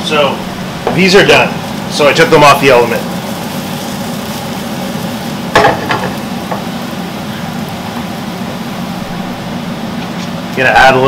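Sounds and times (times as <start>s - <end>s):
kitchen extractor fan hum: 0.0s - 11.0s
mushrooms sizzling in a frying pan: 0.0s - 11.0s
pan clattering on hob grate: 5.5s - 6.7s.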